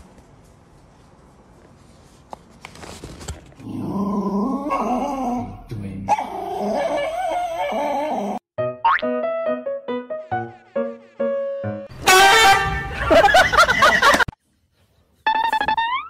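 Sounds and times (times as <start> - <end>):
small dog whining: 6.1 - 8.4.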